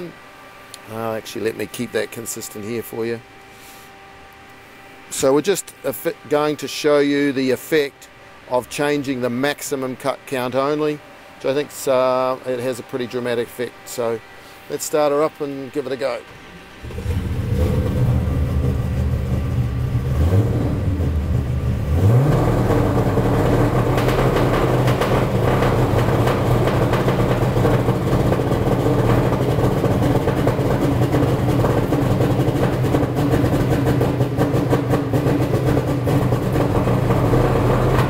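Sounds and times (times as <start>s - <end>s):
engine revving with pops on limiter: 16.9s - 38.0s.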